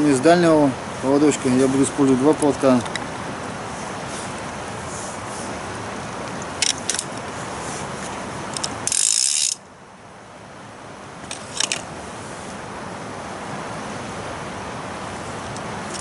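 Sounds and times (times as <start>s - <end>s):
fishing reel drag ratcheting: 8.5s - 9.6s.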